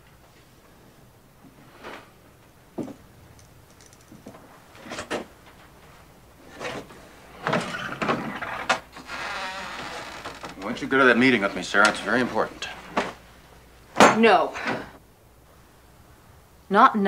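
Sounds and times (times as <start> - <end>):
wooden wardrobe door creaking: 6.6 - 13.2.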